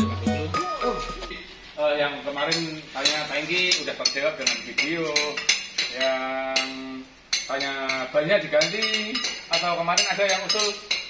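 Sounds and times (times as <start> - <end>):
steady percussion beat: 0.0 - 1.6.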